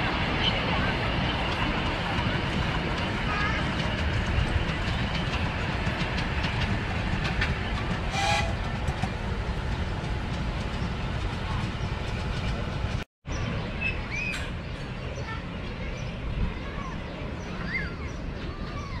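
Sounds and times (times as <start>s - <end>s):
train toot: 0.0s - 12.0s
wheels clicking on rails: 0.0s - 13.0s
miniature train rumbling: 0.0s - 19.0s.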